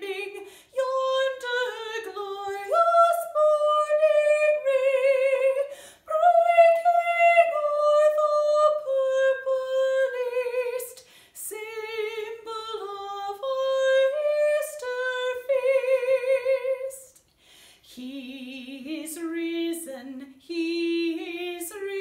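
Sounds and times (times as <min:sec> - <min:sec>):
woman singing a hymn: 0:00.0 - 0:17.2, 0:17.8 - 0:22.0
singer breathing: 0:00.4 - 0:00.8, 0:05.7 - 0:06.1, 0:11.0 - 0:11.4, 0:17.3 - 0:17.9.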